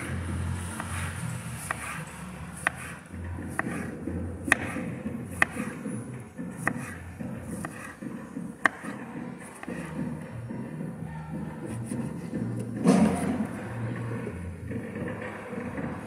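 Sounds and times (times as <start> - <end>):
knife slicing tomatoes: 0.0 - 10.0
knife knocking on wooden board: 3.4 - 13.5.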